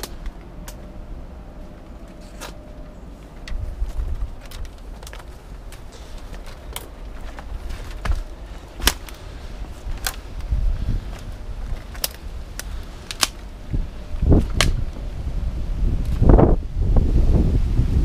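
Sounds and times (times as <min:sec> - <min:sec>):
twigs snapping underfoot: 0:00.0 - 0:01.0, 0:02.0 - 0:15.1
low rumble: 0:00.0 - 0:18.0.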